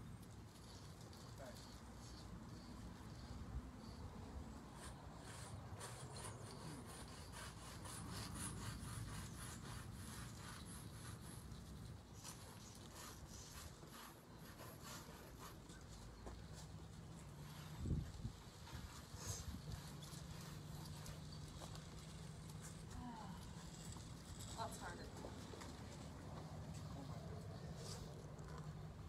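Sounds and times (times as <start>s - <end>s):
chalk scraping on concrete: 4.4s - 25.1s.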